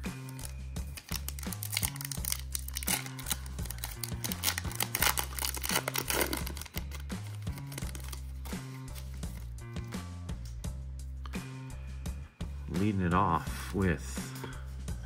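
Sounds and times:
plastic wrapper tearing and crinkling: 0.0s - 9.5s
background music with bass line: 0.0s - 15.0s.

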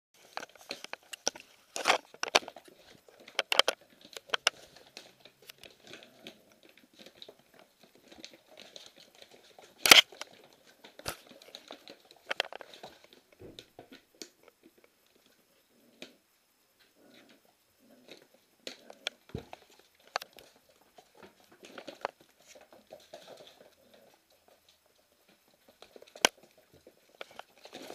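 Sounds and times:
plastic bag crinkling: 0.2s - 13.2s.

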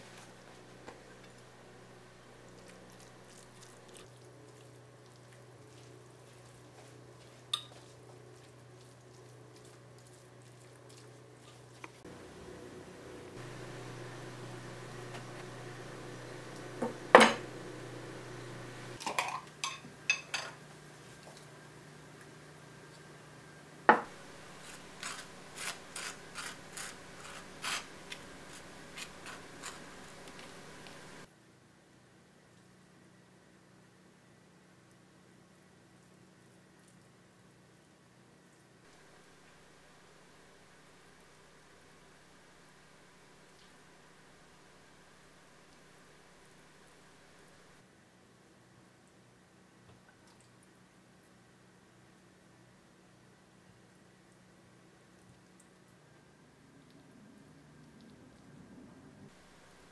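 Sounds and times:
low steady hum: 0.0s - 59.9s
forks scraping wet meat: 24.6s - 30.6s.

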